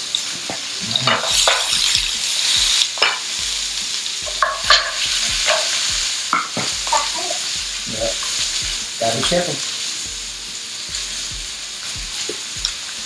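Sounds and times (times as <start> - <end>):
vegetables sizzling in pan: 0.0 - 13.0
metal tongs scraping pan: 0.9 - 3.2, 4.3 - 7.1.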